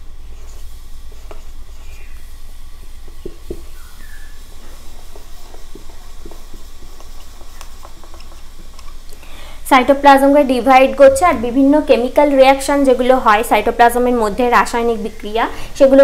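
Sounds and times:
low hum: 0.0 - 15.9
marker scratching on whiteboard: 4.6 - 8.5.

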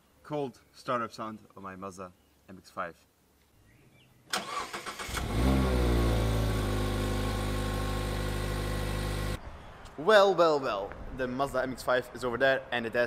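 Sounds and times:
car engine cranking: 4.3 - 9.4
car engine idling: 5.4 - 9.4.

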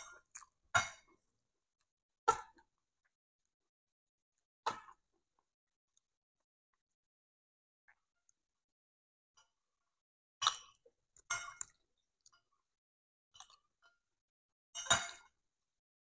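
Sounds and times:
cutlery clinking and scraping on plate: 14.8 - 15.4.

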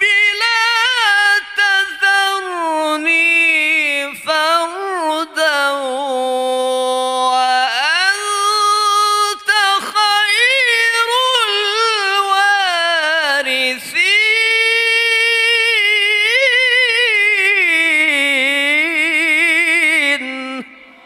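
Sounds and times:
man chanting melodically: 0.0 - 21.0.

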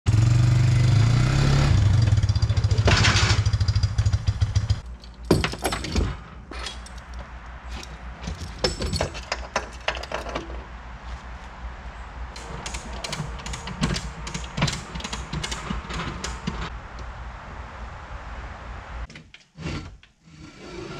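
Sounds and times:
atv engine running: 0.1 - 4.8
metal clanks and clicks of straps: 4.8 - 10.7, 12.4 - 16.7.

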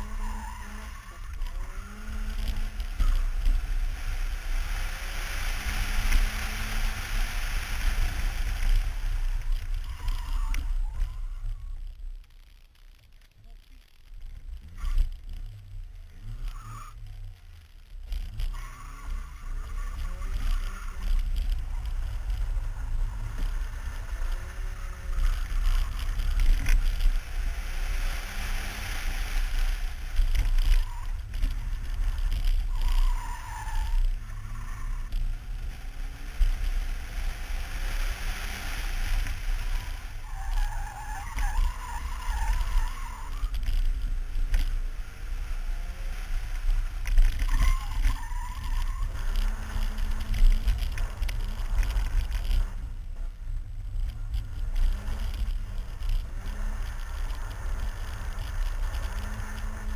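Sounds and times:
tyres squealing: 47.3 - 50.3.

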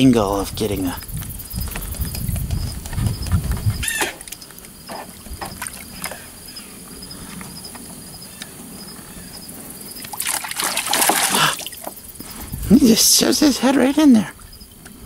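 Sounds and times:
faint insect trill: 0.0 - 15.0
water sloshing and splashing: 4.0 - 6.4, 10.0 - 12.1.

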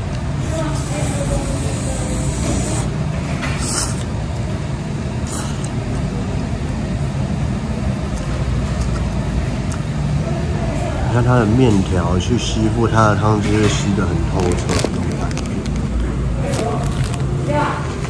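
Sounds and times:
slurping noodles: 0.4 - 4.2, 5.2 - 6.0.

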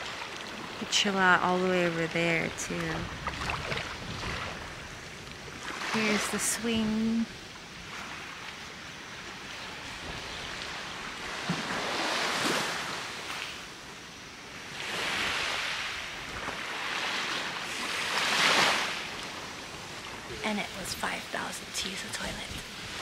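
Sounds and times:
small waves washing onto beach: 0.0 - 23.0.

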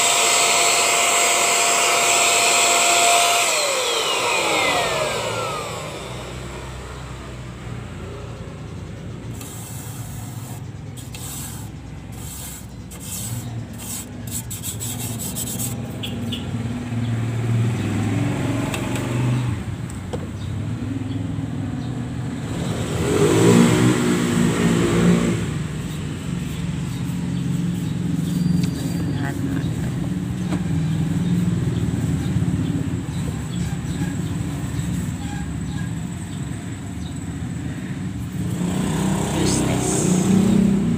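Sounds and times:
vacuum cleaner winding down: 0.0 - 7.6, 38.5 - 40.9
rubbing and scraping: 9.3 - 16.3, 25.6 - 35.9.

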